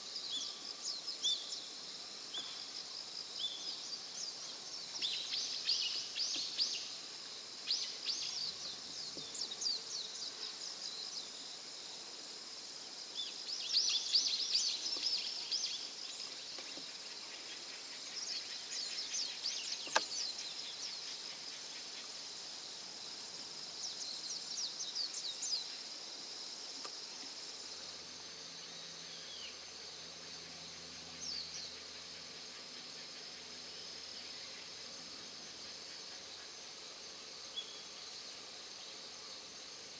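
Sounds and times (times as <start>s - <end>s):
insect trill: 0.0s - 39.9s
sharp click: 19.8s - 20.1s.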